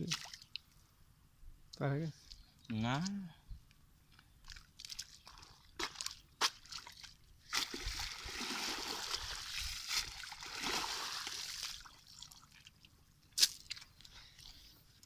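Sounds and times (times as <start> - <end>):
water sloshing and trickling: 0.0 - 0.8, 4.4 - 14.7.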